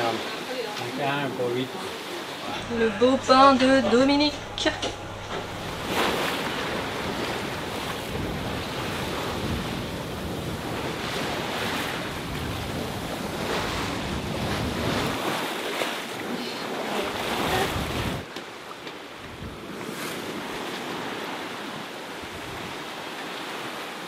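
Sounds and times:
water rushing past a hull: 0.0 - 24.0
wind buffeting microphone: 2.6 - 15.3, 17.2 - 18.3.

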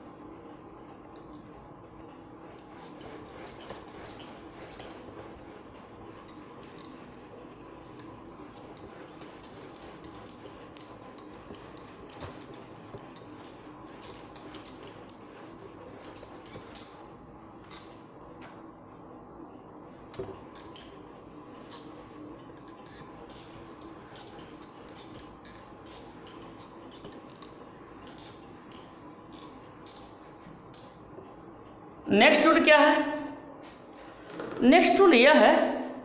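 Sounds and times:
duster rubbing on whiteboard: 1.9 - 18.0, 21.5 - 30.6.

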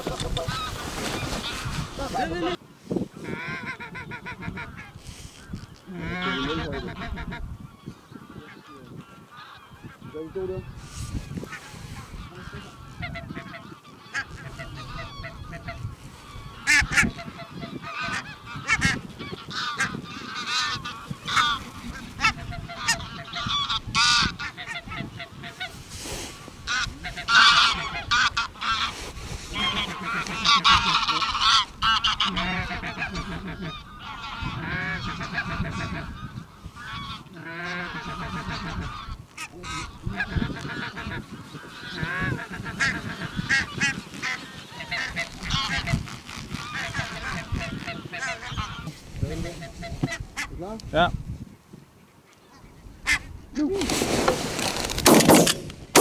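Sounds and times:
geese honking: 0.0 - 2.6, 3.2 - 50.6, 52.4 - 53.3.

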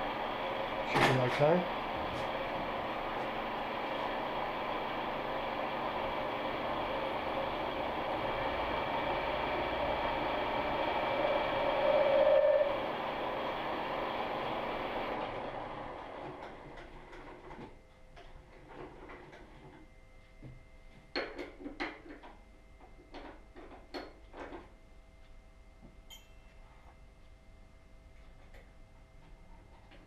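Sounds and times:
milling machine running: 0.0 - 16.7.

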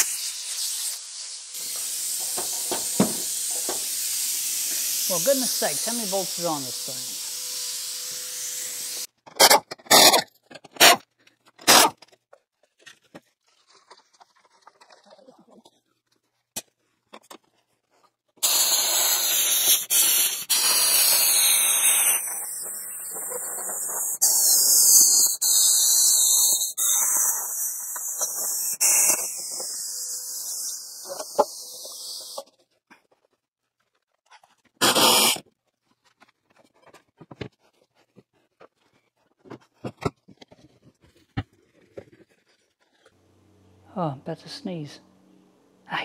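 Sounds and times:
plasma cutter hissing: 0.0 - 9.1, 18.4 - 32.4.

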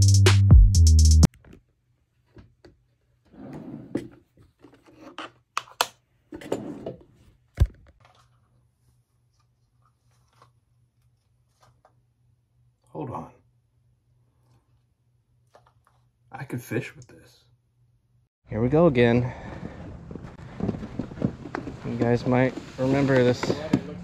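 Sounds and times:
electronic music with drum beat: 0.0 - 1.3
rubbing and scraping noises: 19.4 - 24.0.

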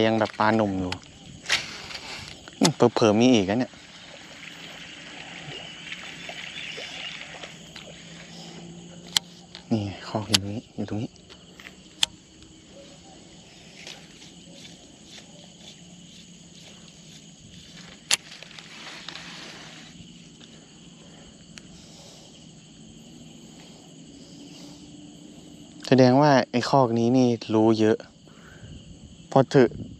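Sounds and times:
faint insect drone: 0.0 - 29.9
sharp clicks: 9.0 - 10.6, 18.0 - 18.3.

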